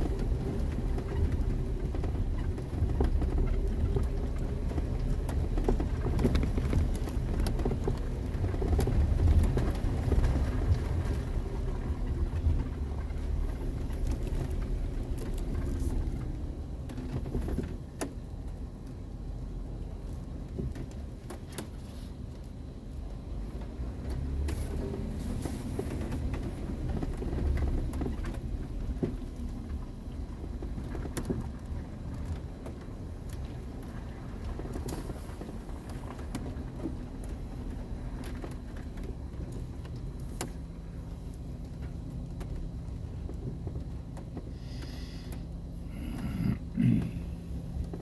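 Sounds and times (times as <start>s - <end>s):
body and suspension knocks and rattles: 0.0s - 48.0s
vehicle engine and tyre rumble: 0.0s - 48.0s.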